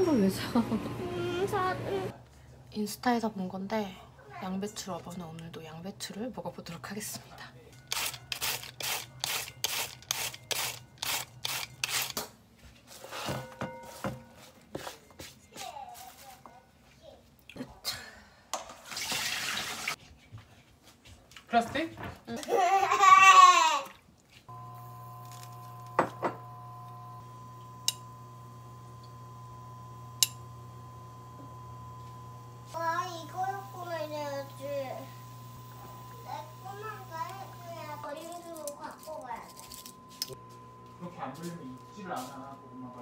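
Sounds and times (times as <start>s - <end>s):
induction cooktop hum: 0.0s - 2.2s, 24.5s - 43.0s
peeler rasping across cabbage: 7.9s - 12.2s.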